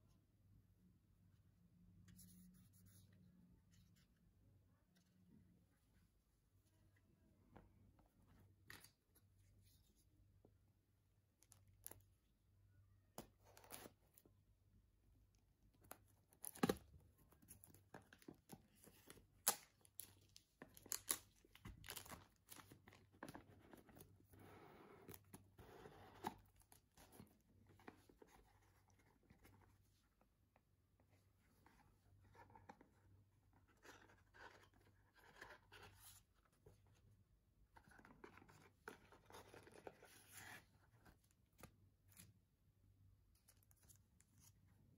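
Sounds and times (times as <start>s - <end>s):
shrink wrap crinkling and tearing: 19.4s - 23.0s.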